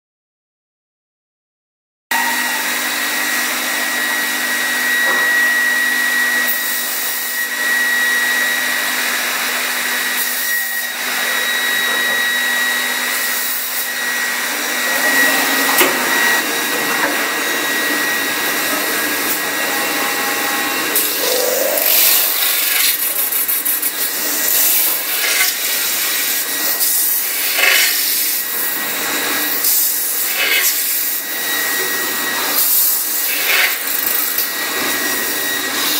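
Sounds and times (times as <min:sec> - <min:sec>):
metal spinning lathe whirring: 0:13.4 - 0:25.5
rasping surges: 0:14.8 - 0:23.7
low hum: 0:19.7 - 0:23.0.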